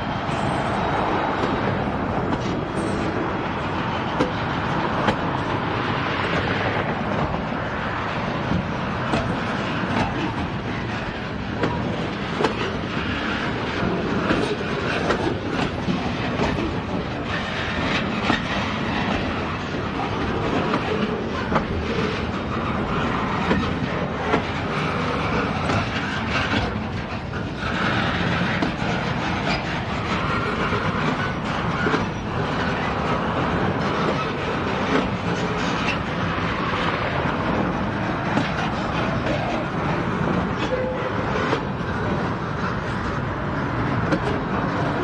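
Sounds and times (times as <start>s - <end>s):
steel wheels rumbling on rail: 0.0s - 45.0s
sharp clicks and clacks: 8.3s - 43.2s, 43.9s - 45.0s.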